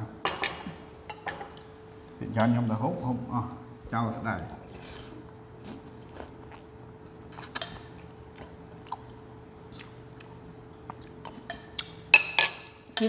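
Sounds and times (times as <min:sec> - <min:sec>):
chewing and mouth sounds: 0:04.4 - 0:06.7, 0:07.3 - 0:12.0.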